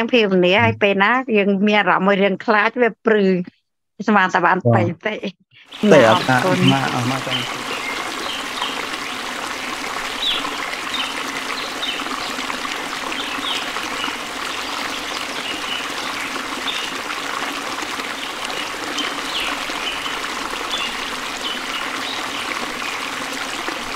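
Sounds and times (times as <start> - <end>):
running water: 5.7 - 23.9.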